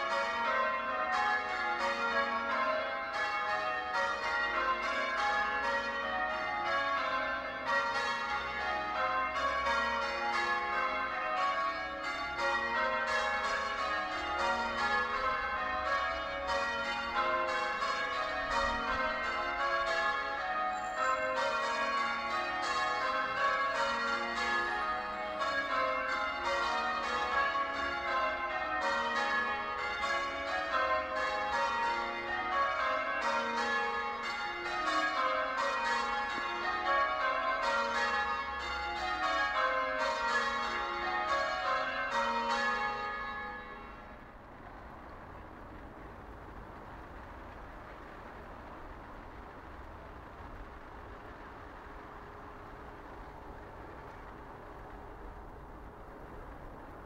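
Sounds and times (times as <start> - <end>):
church bells change ringing: 0.0 - 45.6.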